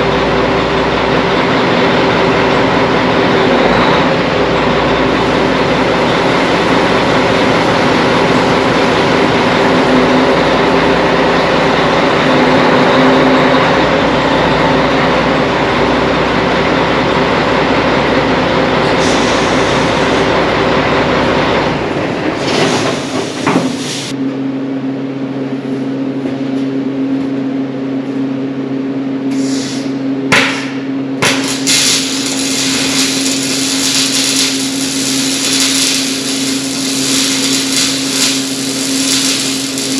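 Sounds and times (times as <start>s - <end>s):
welding crackling hiss: 18.8s - 20.4s, 31.2s - 39.9s
machine motor hum: 31.0s - 39.9s.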